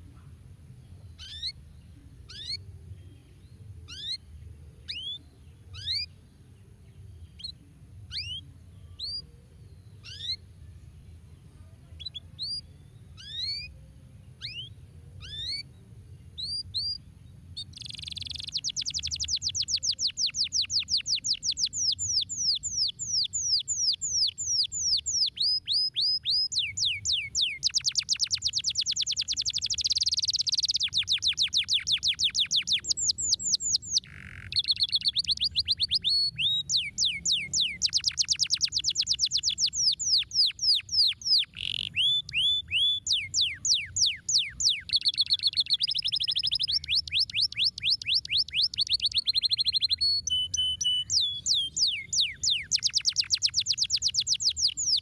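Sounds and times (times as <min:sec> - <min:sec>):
canary singing high trills: 0:10.0 - 0:10.4, 0:17.6 - 0:55.0.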